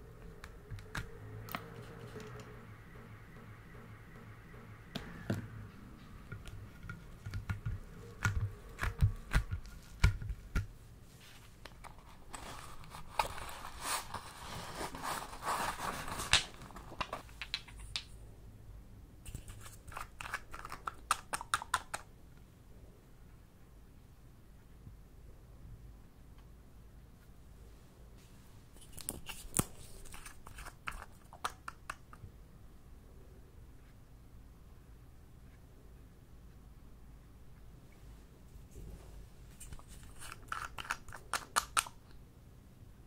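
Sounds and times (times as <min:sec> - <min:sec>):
rustling: 0:06.3 - 0:18.1.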